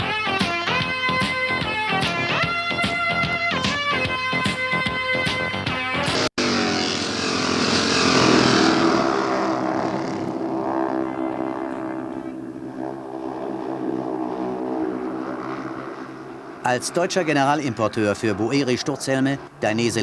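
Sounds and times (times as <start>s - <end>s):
motorcycle engines racing: 6.0s - 20.0s.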